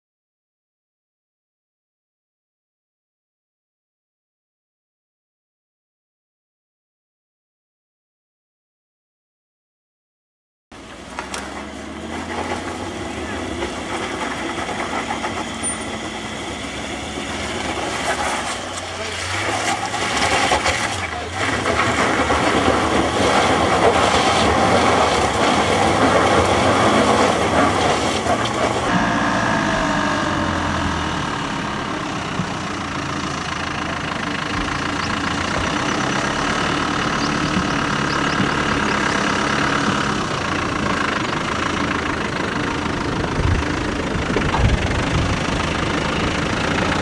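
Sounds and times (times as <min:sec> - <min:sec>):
off-road engines at low speed: 0:10.7 - 0:47.0.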